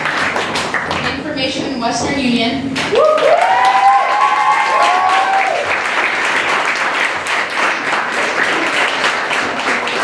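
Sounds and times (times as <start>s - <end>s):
audience applauding: 0.0s - 1.2s, 2.8s - 10.0s
people cheering: 2.9s - 7.0s.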